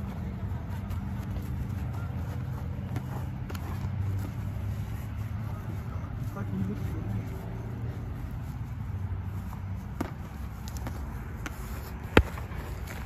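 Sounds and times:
boxing gloves smacking: 0:09.8 - 0:13.0.

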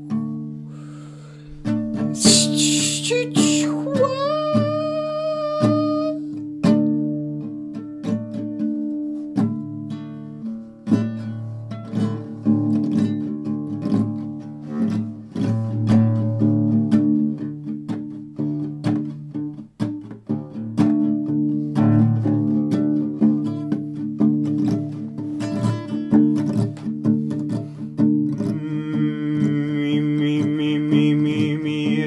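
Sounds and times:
acoustic guitar strumming chords: 0:00.0 - 0:32.0.

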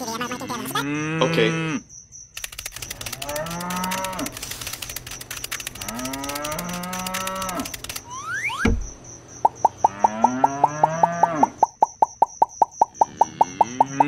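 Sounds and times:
fast rattling clicking: 0:02.4 - 0:08.1
cow mooing: 0:05.8 - 0:07.7, 0:09.9 - 0:11.6.

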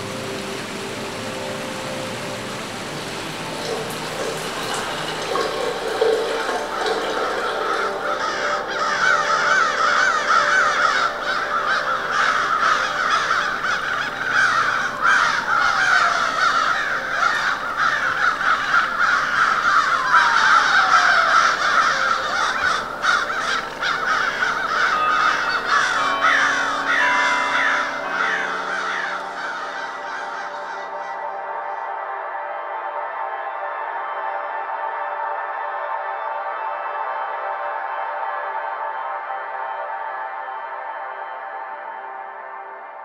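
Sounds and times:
long falling tones: 0:00.0 - 0:31.7
ambient music: 0:00.0 - 0:43.0
crows cawing: 0:03.5 - 0:32.0.

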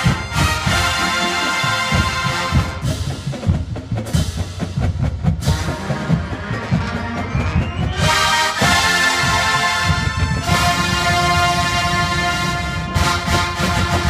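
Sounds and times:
brass section chords: 0:00.0 - 0:03.2, 0:05.4 - 0:14.0
marching drum rhythm: 0:00.0 - 0:14.0.

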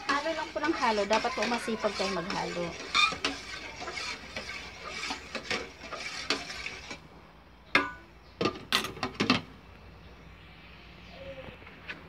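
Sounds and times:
spoon scraping metal pot: 0:00.0 - 0:07.1.

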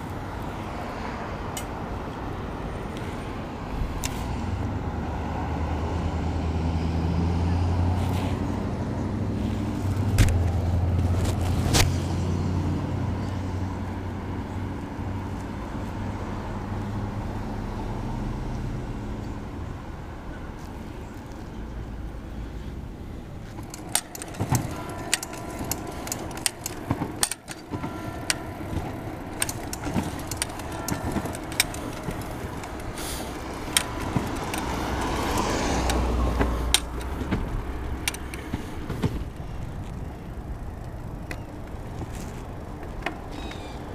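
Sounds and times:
vehicle engine hum: 0:00.0 - 0:43.9
bicycle rattling over bumps: 0:09.4 - 0:15.4, 0:22.8 - 0:43.9.

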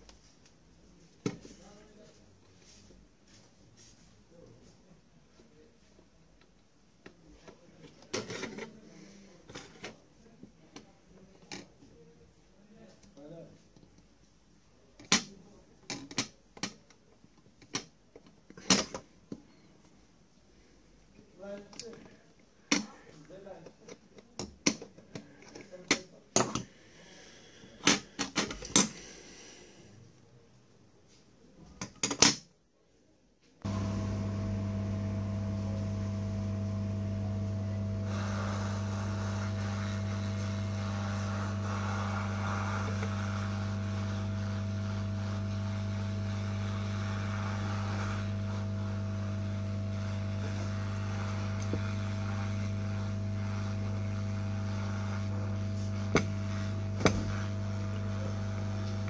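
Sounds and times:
electrical hum: 0:33.6 - 0:59.0
hot air hissing: 0:33.6 - 0:59.0.

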